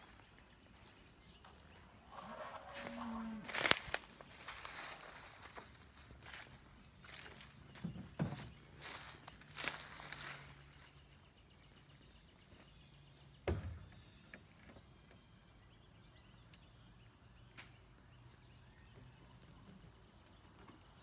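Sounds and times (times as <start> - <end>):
sharp thump: 13.4 - 13.9.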